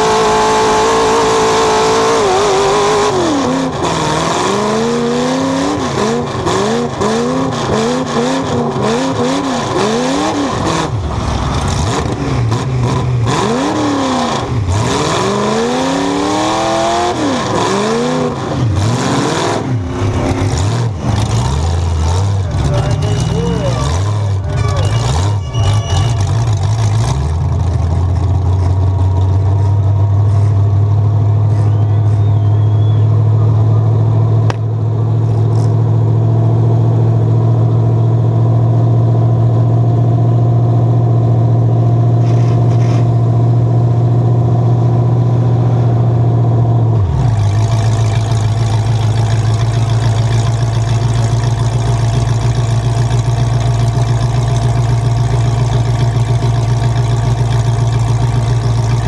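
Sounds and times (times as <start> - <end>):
truck engine idling: 19.7 - 37.1, 47.3 - 59.0.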